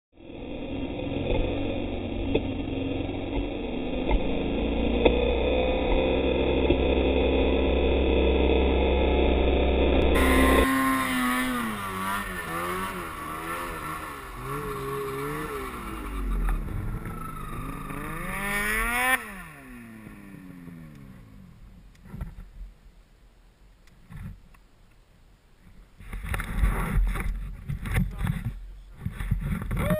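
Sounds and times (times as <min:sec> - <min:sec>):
snowmobile engine revving: 0:00.2 - 0:21.7.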